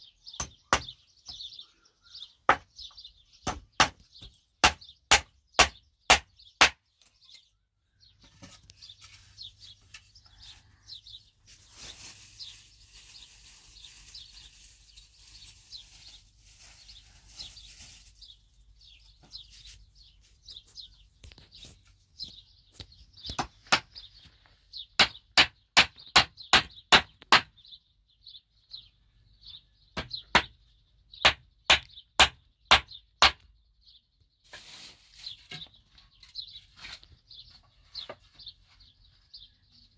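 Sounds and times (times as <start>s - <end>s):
small birds chirping: 0.0s - 39.9s
hammer striking wooden planks: 3.4s - 6.8s, 25.0s - 27.5s.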